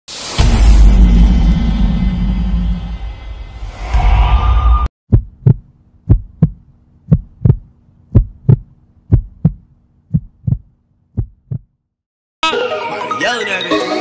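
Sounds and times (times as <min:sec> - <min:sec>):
heartbeat thumps: 0:05.1 - 0:11.7.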